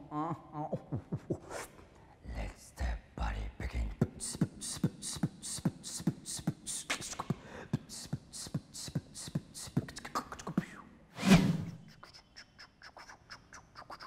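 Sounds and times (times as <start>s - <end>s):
beatboxing: 0.0s - 1.8s, 3.9s - 10.9s, 11.9s - 14.0s.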